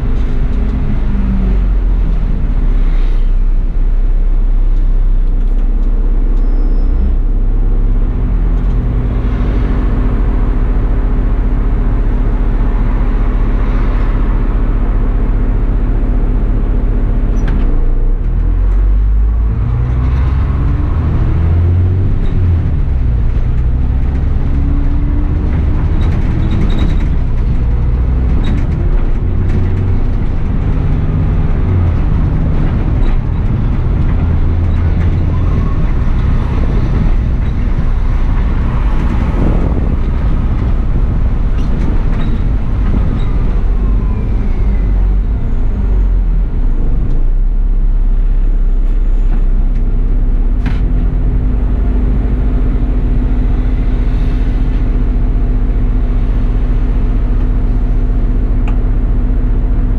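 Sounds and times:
bus engine: 0.0 - 59.9.

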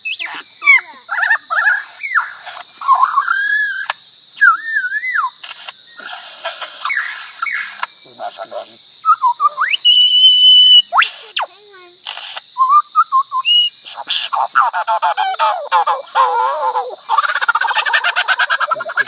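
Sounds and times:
high insect drone: 0.0 - 19.0
lyrebird mimicking calls: 13.4 - 19.0.

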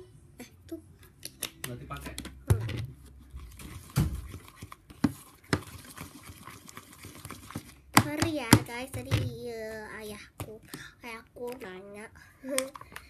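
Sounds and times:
spatula stirring wet slime: 3.0 - 11.6.

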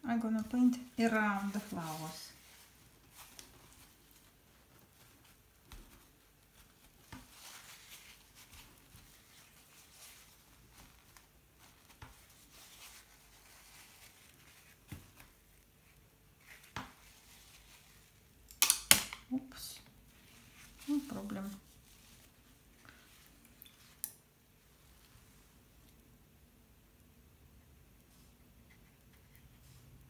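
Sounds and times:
paper towel rustling on paper: 0.6 - 18.3, 20.0 - 24.0.

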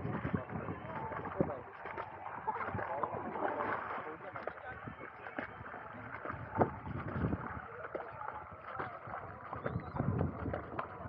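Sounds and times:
water splashing and sloshing: 0.0 - 11.0.

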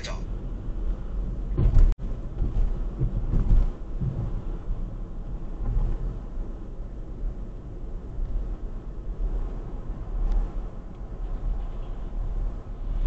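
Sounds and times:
car driving heard from cabin: 0.0 - 13.0.

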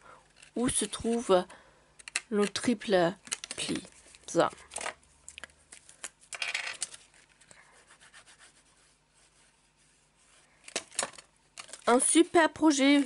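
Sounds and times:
paper rustling: 5.7 - 13.0.

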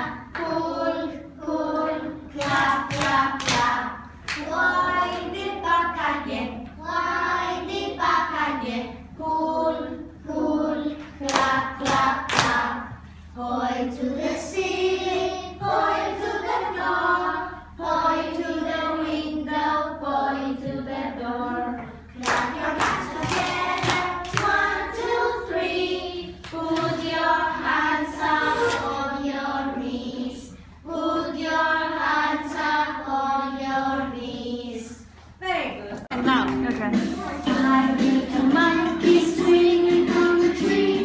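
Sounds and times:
children singing together: 0.0 - 35.1, 37.1 - 41.0
children clapping hands: 2.4 - 4.5, 11.3 - 12.6, 22.2 - 24.6.

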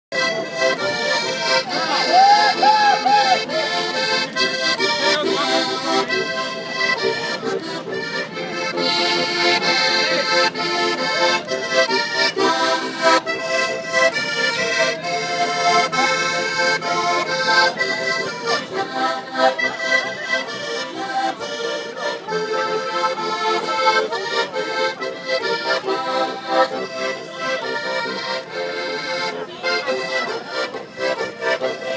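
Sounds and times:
accordion playing a tune: 0.1 - 31.9.

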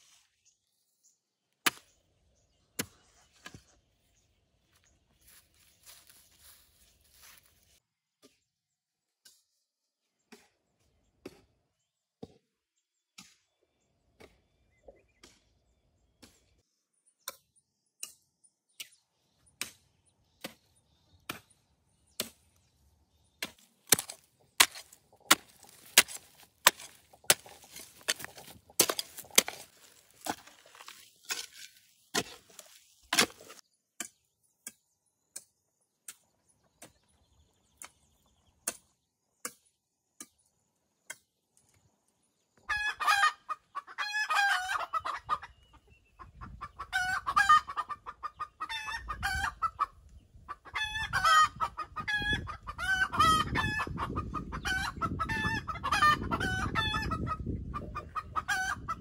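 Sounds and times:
metal hoe chopping stony soil: 1.6 - 2.0, 23.3 - 34.8
soil and stones scattering: 23.4 - 33.6.

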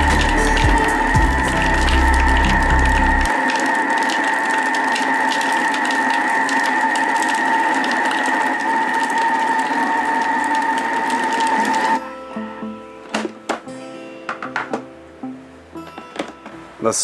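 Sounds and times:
food processor whine: 0.0 - 12.1.

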